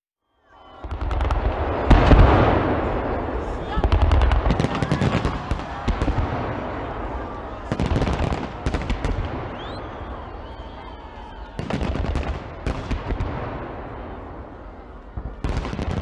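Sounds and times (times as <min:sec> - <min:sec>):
fireworks bangs and crackling: 0:00.4 - 0:16.0.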